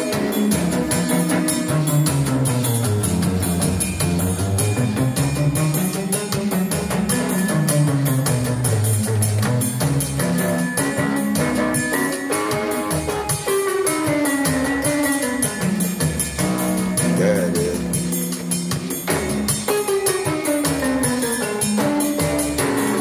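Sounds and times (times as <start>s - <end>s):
electronic keyboard melody: 0.0s - 23.0s
steady drum beat: 0.0s - 23.0s.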